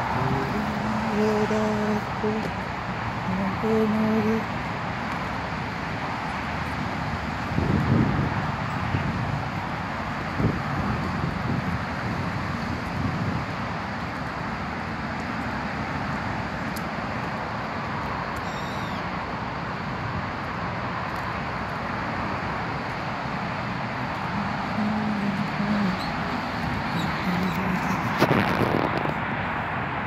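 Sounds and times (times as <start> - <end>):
road traffic hiss: 0.0 - 30.0
high bird call falling in pitch: 18.4 - 19.0.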